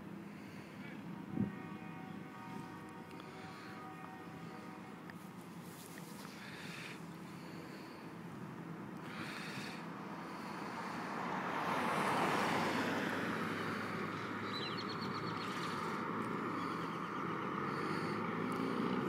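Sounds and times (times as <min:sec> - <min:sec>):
road noise: 0:00.0 - 0:19.0
car passing close by: 0:09.1 - 0:19.0.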